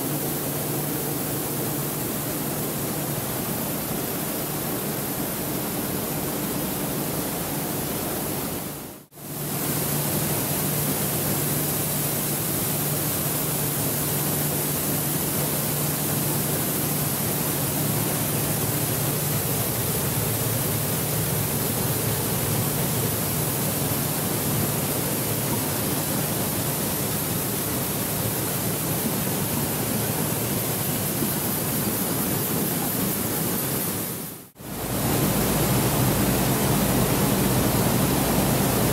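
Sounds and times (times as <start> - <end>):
machinery motor hum: 34.6 - 38.9.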